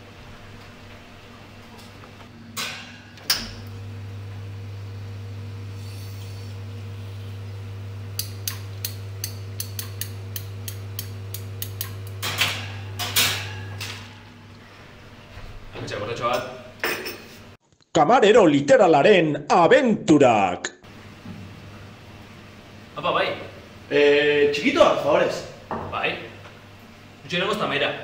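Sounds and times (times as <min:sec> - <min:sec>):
espresso machine pump humming: 0:03.1 - 0:13.4, 0:20.9 - 0:27.1.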